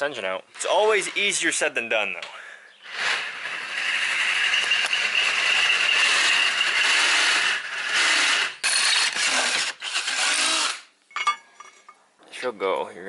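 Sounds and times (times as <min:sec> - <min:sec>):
power drill boring through steel: 0:02.8 - 0:10.9.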